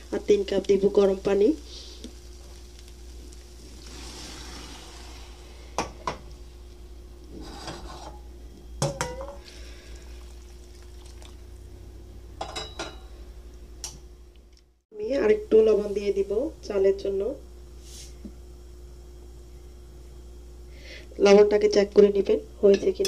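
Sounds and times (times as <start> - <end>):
light sizzling: 0.0 - 23.0
liquid poured into wok: 3.4 - 5.7, 9.4 - 11.6.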